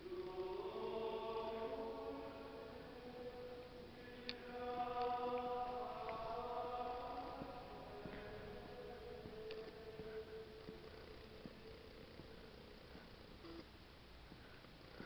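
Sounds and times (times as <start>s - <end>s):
choir singing long notes: 0.0s - 10.8s.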